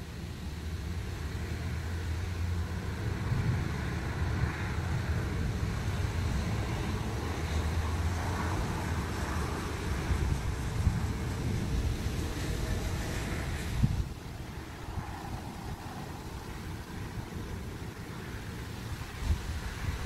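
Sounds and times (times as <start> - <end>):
thunder rumbling: 2.6 - 18.5.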